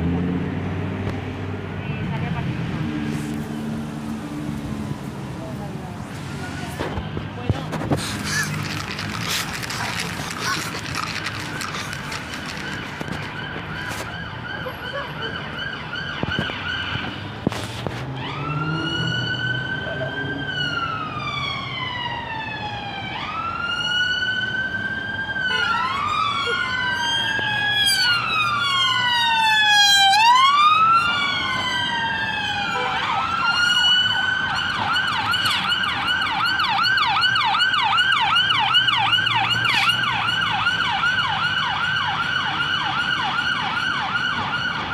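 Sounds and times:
emergency vehicle siren wailing: 6.2 - 44.9
second siren wailing: 12.8 - 17.4, 18.1 - 44.9.

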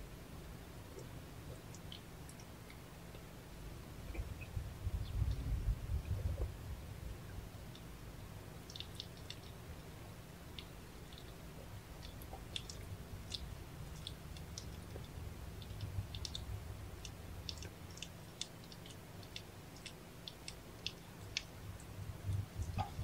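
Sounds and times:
low steady rumble: 0.0 - 23.0
cats licking wet clicks: 8.7 - 9.6, 10.5 - 23.0.

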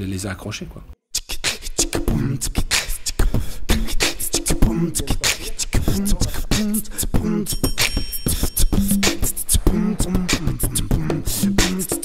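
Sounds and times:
beatbox-style percussion beat: 1.1 - 12.0
short pitched vocal notes: 3.7 - 7.7, 8.7 - 12.0.

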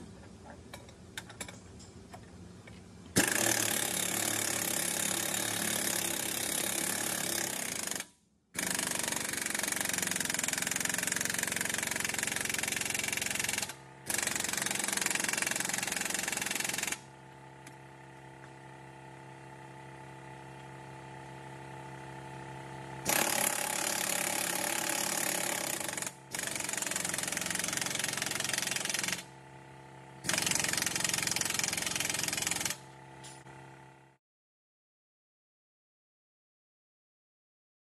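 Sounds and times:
pneumatic impact wrench hammering: 3.2 - 17.8, 23.0 - 29.3, 30.2 - 33.6.

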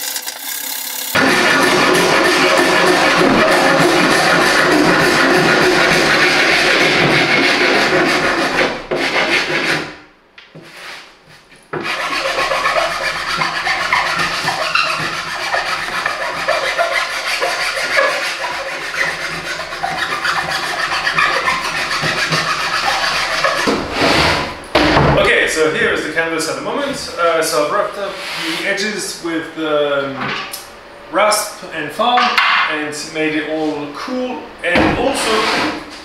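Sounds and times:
rasp scraping wood: 0.6 - 10.0, 11.8 - 24.6, 35.0 - 35.8.

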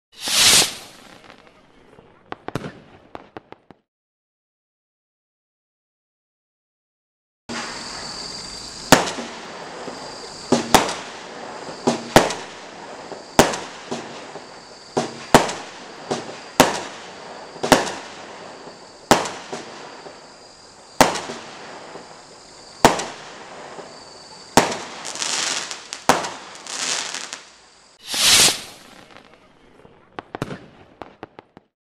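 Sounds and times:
steady hiss: 0.2 - 1.5, 7.5 - 30.0
firework bangs: 0.2 - 3.8, 7.5 - 31.7.

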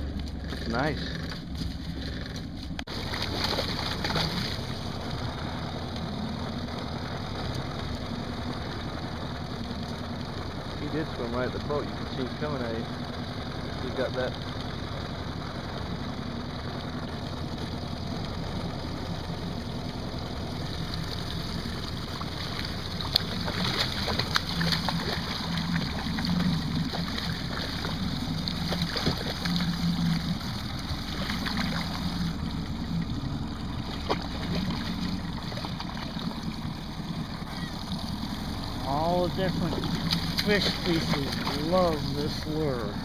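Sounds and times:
boat motor running: 0.0 - 43.0
fish splashing at the surface: 2.9 - 5.1, 20.5 - 43.0.

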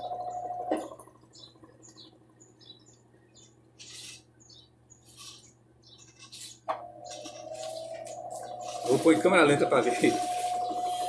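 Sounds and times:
washing machine spin whine: 0.0 - 3.7, 6.7 - 11.0
washing machine faint low hum: 0.0 - 11.0.

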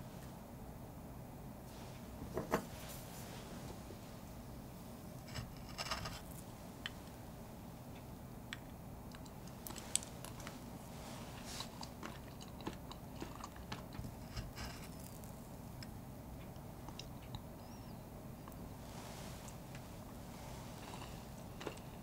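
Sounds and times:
spoon cutting crunchy cake: 5.3 - 6.4, 11.6 - 15.3.

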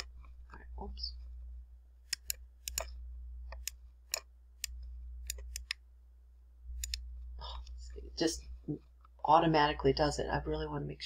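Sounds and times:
steady low hum: 0.0 - 11.0
mouse button clicking: 2.1 - 2.9.

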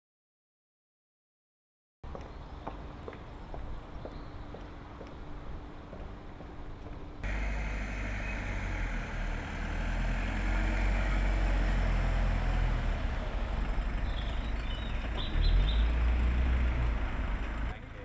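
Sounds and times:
minibus engine driving past: 7.2 - 18.0.

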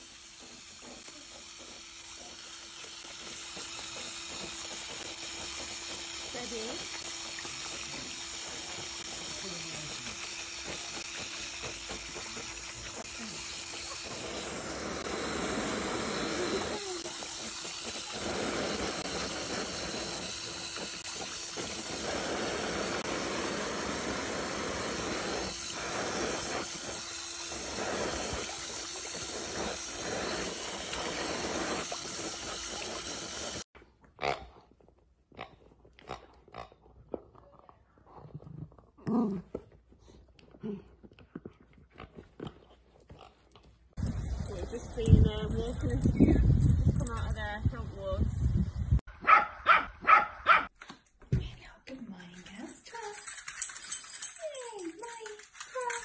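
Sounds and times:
hose spray hissing: 0.0 - 33.7.

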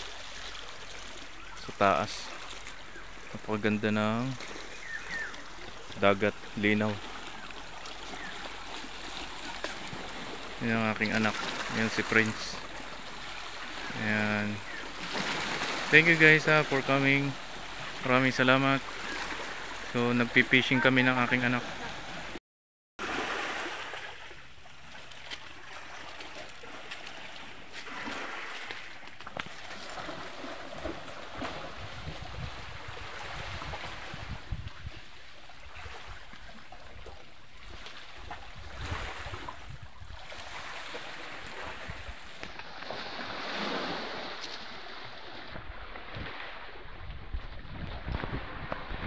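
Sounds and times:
sea water lapping on rocks: 0.0 - 22.4, 23.0 - 49.0
wind buffeting microphone: 31.4 - 35.2, 38.4 - 40.3, 45.6 - 49.0.

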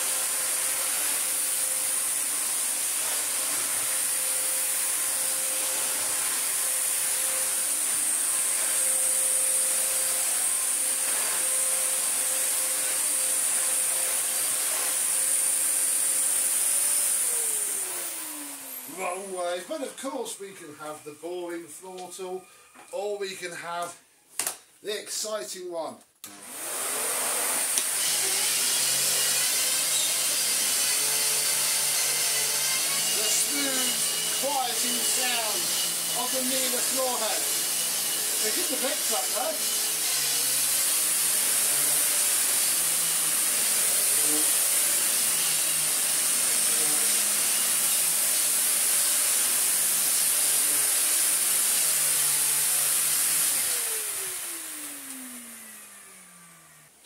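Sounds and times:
vacuum cleaner running: 0.0 - 19.9, 26.2 - 57.0
vacuum motor winding down: 49.7 - 57.0.

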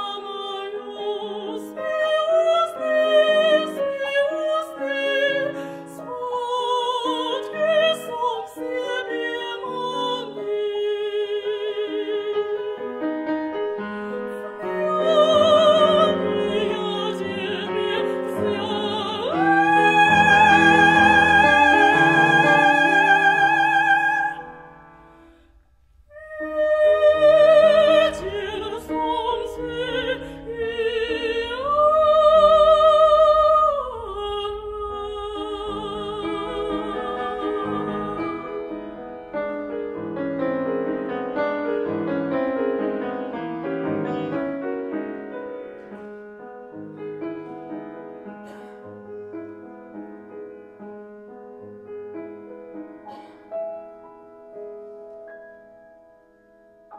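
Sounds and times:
operatic singing: 0.0 - 13.1, 13.8 - 25.3, 26.1 - 39.8
piano accompaniment: 0.0 - 56.9.

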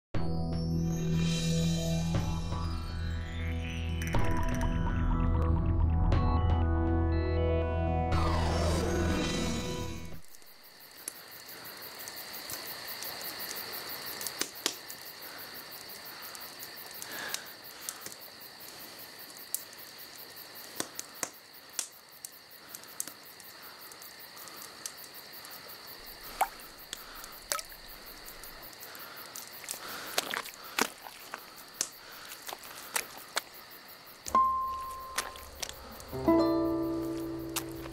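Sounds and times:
crickets chirping: 8.2 - 37.9.

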